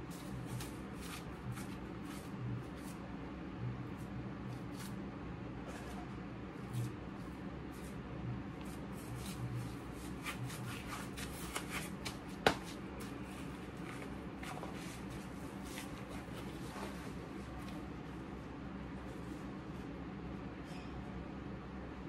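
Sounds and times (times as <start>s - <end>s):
work gloves rubbing and clapping: 10.1s - 13.2s.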